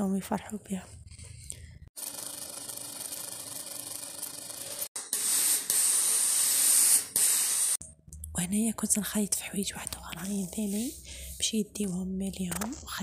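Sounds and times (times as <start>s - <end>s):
steam iron hissing: 5.1s - 7.8s.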